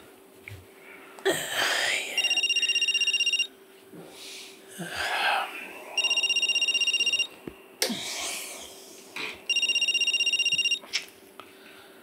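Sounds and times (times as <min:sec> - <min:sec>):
phone ringtone electronic trill: 0:02.2 - 0:03.5, 0:06.0 - 0:07.3, 0:09.5 - 0:10.8.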